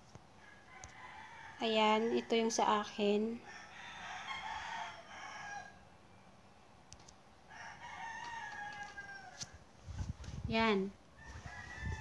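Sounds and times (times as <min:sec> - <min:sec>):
rooster crowing faintly: 0:03.4 - 0:05.8, 0:07.5 - 0:10.1, 0:11.2 - 0:12.0.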